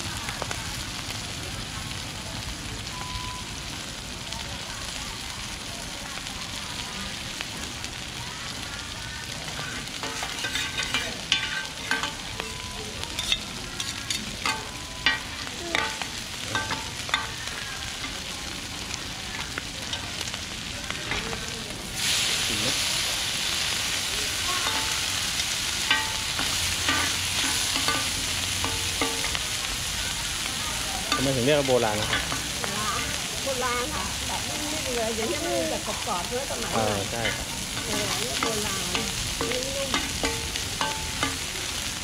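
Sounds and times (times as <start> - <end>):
pancake sizzling in oil: 0.0 - 42.0
metal spatulas scraping pan: 9.5 - 18.2, 25.8 - 29.5.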